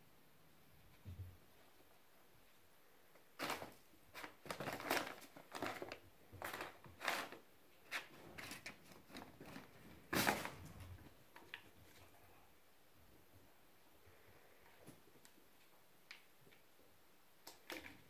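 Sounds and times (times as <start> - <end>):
plastic bag crinkling: 3.4 - 7.4.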